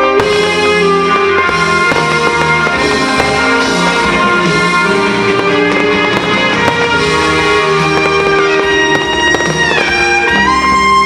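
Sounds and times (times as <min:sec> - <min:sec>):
loud music with drums: 0:00.0 - 0:11.0.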